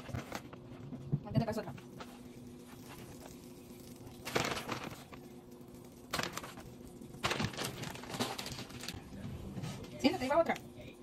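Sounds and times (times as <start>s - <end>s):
rustling and handling noise: 0.0s - 10.7s.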